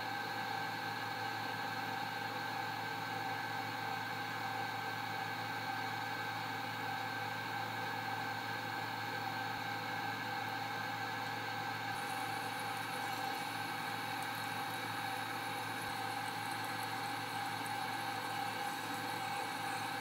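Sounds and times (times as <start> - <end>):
machine hum with high whine: 11.2 - 20.0.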